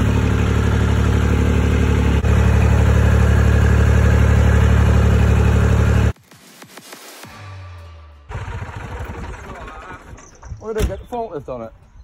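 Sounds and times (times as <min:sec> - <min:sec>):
vehicle engine idling: 0:00.0 - 0:06.2, 0:08.3 - 0:10.4.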